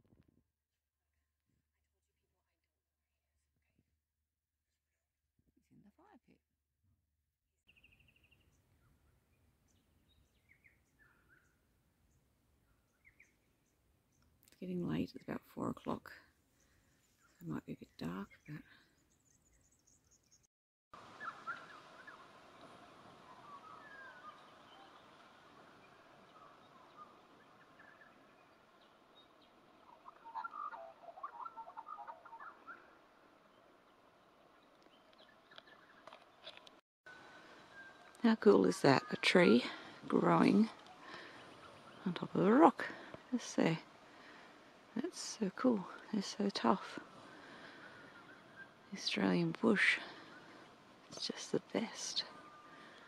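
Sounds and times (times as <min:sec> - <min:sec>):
faint bird calls: 0:21.0 - 0:38.2, 0:38.8 - 0:53.0.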